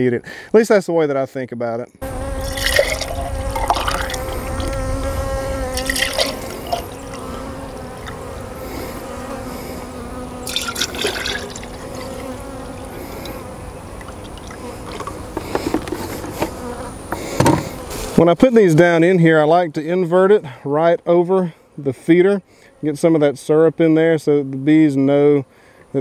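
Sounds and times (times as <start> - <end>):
honeybees humming: 2.0 - 26.0
syrup pouring into glass jars: 2.4 - 4.7, 5.8 - 6.9, 10.4 - 12.2.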